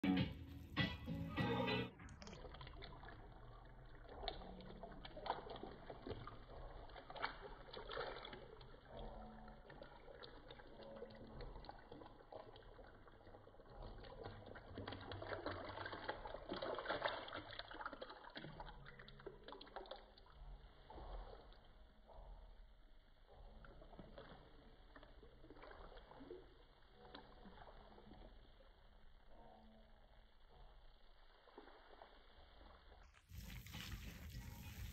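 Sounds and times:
water pouring into bathwater: 0:02.0 - 0:34.9
water sloshing in tub: 0:33.2 - 0:34.9.

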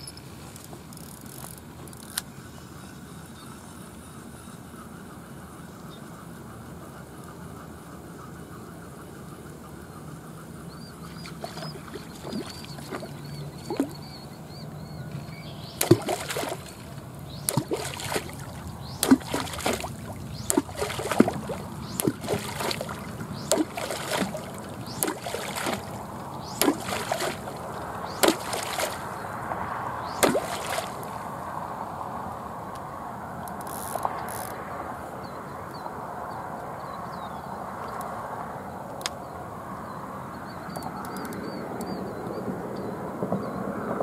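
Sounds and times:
fish splashing in water: 0:11.0 - 0:14.6, 0:15.2 - 0:31.7.

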